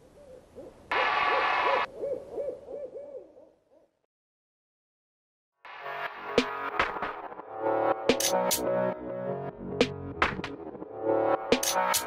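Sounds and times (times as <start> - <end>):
electronic music: 5.7 - 12.0.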